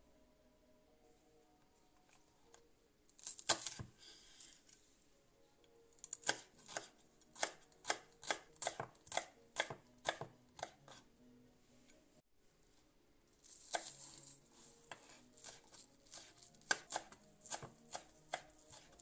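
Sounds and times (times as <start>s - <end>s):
knife chopping on wooden board: 6.2s - 10.9s, 14.9s - 19.0s.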